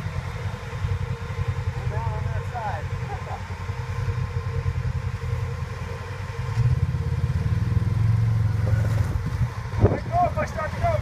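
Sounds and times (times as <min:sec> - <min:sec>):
off-road vehicle engine revving: 0:00.0 - 0:11.0.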